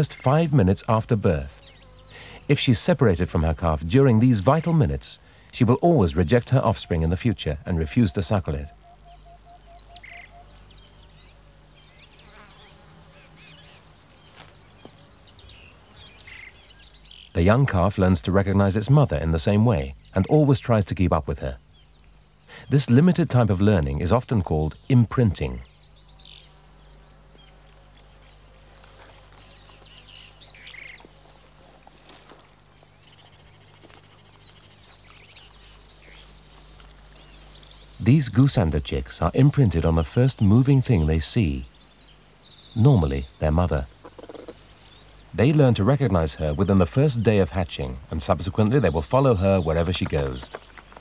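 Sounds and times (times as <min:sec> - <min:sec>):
bird chirps: 0:00.0 - 0:04.8, 0:05.8 - 0:40.8, 0:41.4 - 0:51.0
insects droning: 0:00.0 - 0:51.0
birds chirping and whistling: 0:06.6 - 0:13.9, 0:21.4 - 0:26.5, 0:32.5 - 0:38.7.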